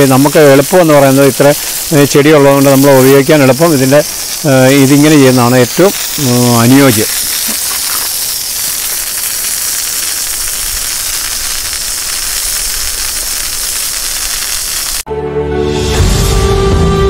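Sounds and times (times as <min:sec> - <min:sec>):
sprayer lance hissing: 0:00.0 - 0:15.1
music: 0:15.1 - 0:17.0.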